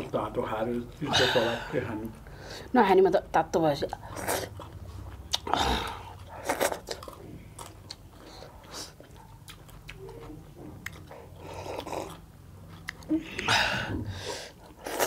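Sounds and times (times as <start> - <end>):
chewing: 4.0 - 13.5.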